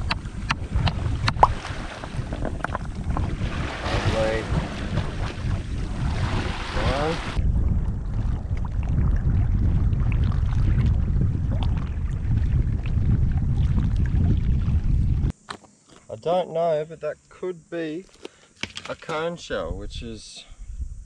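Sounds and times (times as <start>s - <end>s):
shore noise: 0.0s - 7.4s
wind buffeting microphone: 0.0s - 15.3s.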